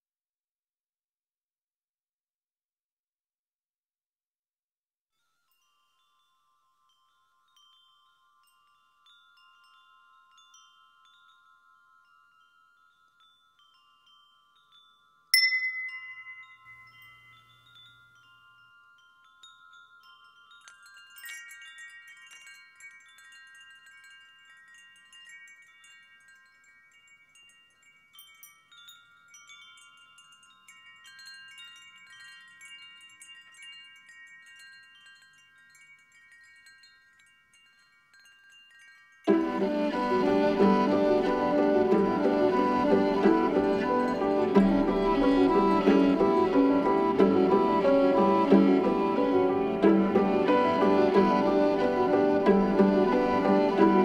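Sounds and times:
chimes ringing: 0:05.2 - 0:54.0
sharp chime strike: 0:15.4 - 0:17.8
high shimmer: 0:15.4 - 0:27.7, 0:38.5 - 0:54.0.

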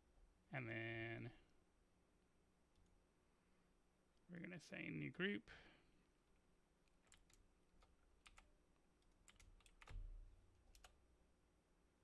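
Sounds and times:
computer keyboard keystrokes: 0:06.9 - 0:10.0, 0:10.7 - 0:11.0.

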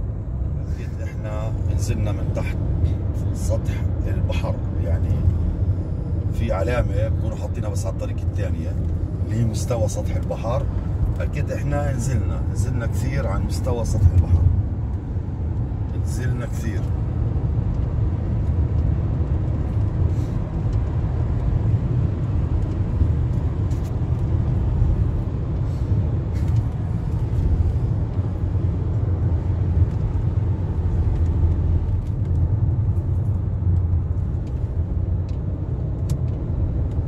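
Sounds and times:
car interior engine rumble: 0:00.0 - 0:37.0.

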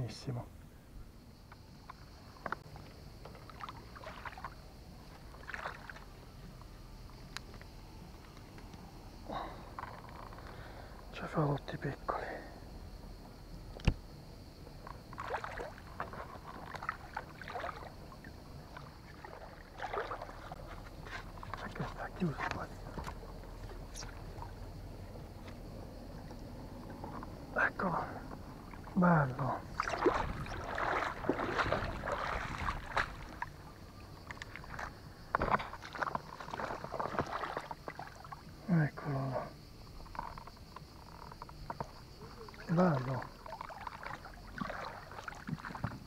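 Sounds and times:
shallow water splashing: 0:01.9 - 0:06.4, 0:14.8 - 0:25.4, 0:26.1 - 0:38.6, 0:41.1 - 0:46.0.

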